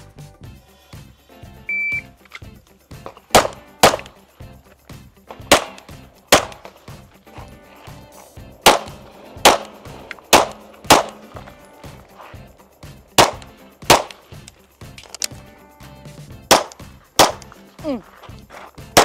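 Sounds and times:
pistol shots: 0:03.1 - 0:04.2, 0:05.3 - 0:07.0, 0:08.5 - 0:12.2, 0:12.8 - 0:15.4, 0:16.5 - 0:17.6.

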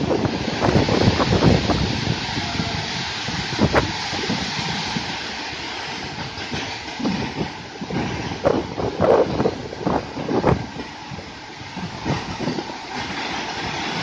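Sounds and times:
wagons clanking and knocking: 0:05.6 - 0:14.0.

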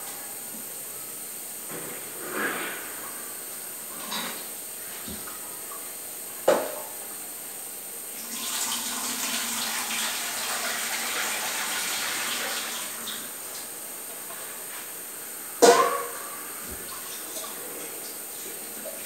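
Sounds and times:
kitchen tap running: 0:08.1 - 0:13.8.

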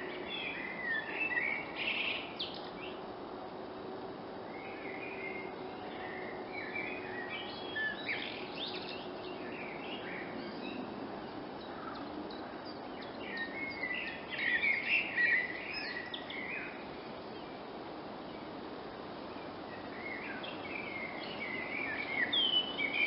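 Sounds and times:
blackbird singing: 0:00.0 - 0:03.0, 0:04.5 - 0:16.8, 0:19.4 - 0:23.0
steady background noise: 0:00.0 - 0:23.0.

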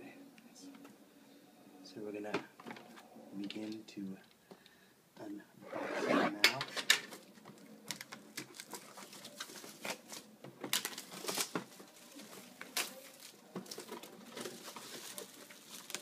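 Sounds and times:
plastic shrink wrap crinkling: 0:07.9 - 0:16.0.

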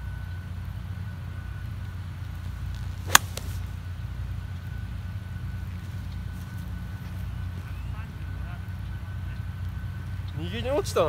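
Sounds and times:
golf club striking ball: 0:03.0 - 0:03.7.

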